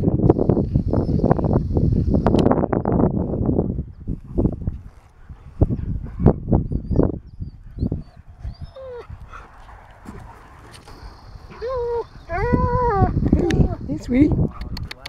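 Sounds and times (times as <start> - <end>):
dog whining: 7.8 - 9.1, 10.9 - 13.9.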